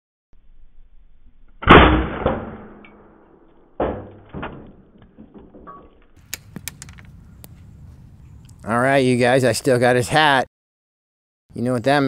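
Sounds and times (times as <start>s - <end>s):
air rifle shot: 1.6s - 3.1s.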